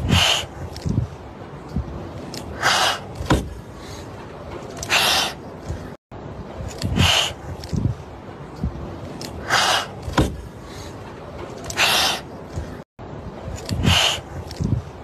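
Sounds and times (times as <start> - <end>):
kittens hissing: 0.0 - 0.6, 4.8 - 5.4, 6.9 - 7.4, 11.8 - 12.3, 13.8 - 14.3.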